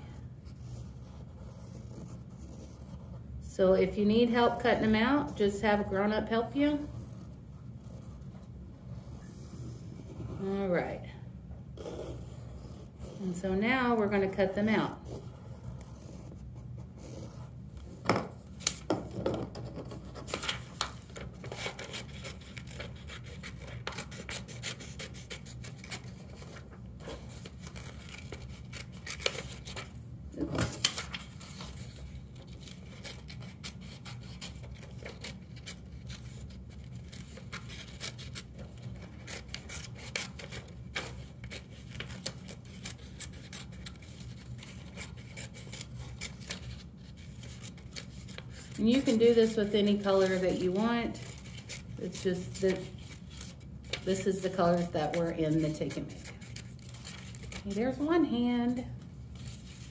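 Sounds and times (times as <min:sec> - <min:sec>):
low steady hum: 0:00.0 - 0:59.9
paper rustling: 0:18.5 - 0:59.9
scissors snipping paper: 0:20.0 - 0:29.9, 0:30.6 - 0:58.4.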